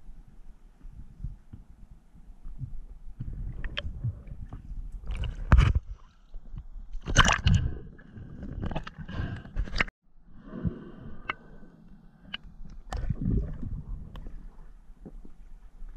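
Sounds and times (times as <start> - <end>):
water gurgling and sloshing: 0.3 - 15.9
water splashes: 7.0 - 7.8.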